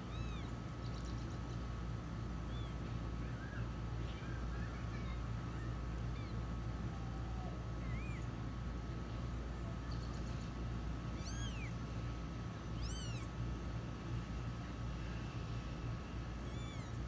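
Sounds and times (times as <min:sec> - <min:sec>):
kittens mewing: 0:00.0 - 0:01.4, 0:02.3 - 0:02.9, 0:05.8 - 0:08.4, 0:11.1 - 0:11.8, 0:12.7 - 0:13.4, 0:16.4 - 0:17.0
steady low hum: 0:00.0 - 0:17.0.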